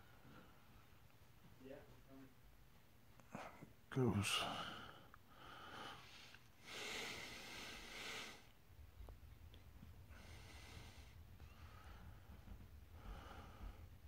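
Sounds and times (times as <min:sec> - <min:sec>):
man breathing heavily: 0:04.4 - 0:08.6, 0:10.1 - 0:14.0.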